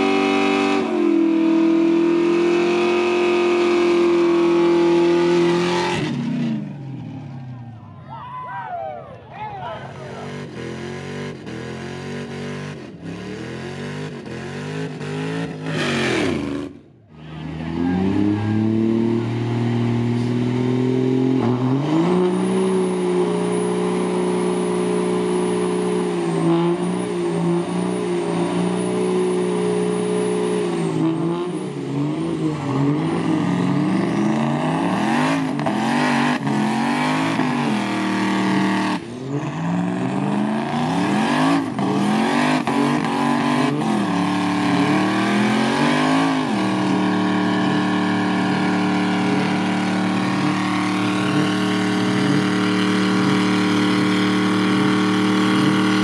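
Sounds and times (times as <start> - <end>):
engines revving hard: 0.0 - 7.8, 9.7 - 56.0
high tyre squeal: 13.0 - 20.4, 21.4 - 56.0.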